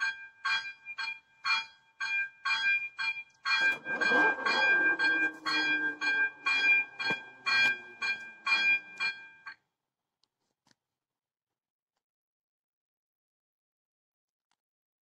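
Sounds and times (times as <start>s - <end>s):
level crossing bell ringing: 0.1s - 9.5s.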